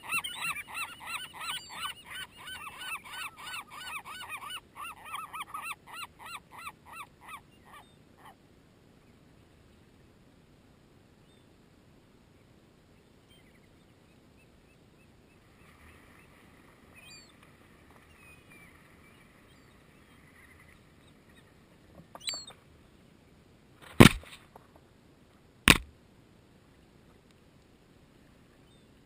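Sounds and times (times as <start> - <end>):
distant gull calls: 0.0 - 8.4, 15.5 - 22.6
loud knocks on microphone: 25.7 - 25.9.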